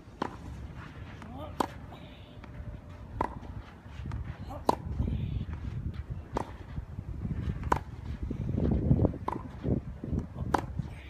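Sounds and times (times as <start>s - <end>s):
tennis ball struck by racquet: 0.2s - 0.6s, 1.2s - 1.9s, 3.0s - 4.9s, 6.3s - 6.6s, 7.6s - 8.0s, 9.2s - 9.6s, 10.4s - 10.8s.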